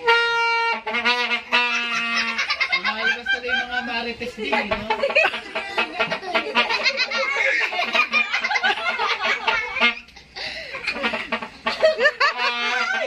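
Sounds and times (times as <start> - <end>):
children and adults laughing: 1.3 - 13.0
people calling out: 12.4 - 13.0.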